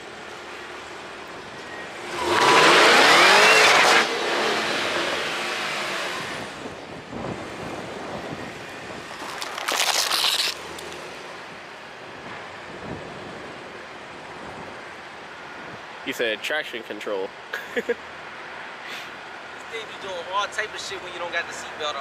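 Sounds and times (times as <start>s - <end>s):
car engine revving: 2.0s - 6.7s
tyres squealing on asphalt: 9.2s - 10.9s.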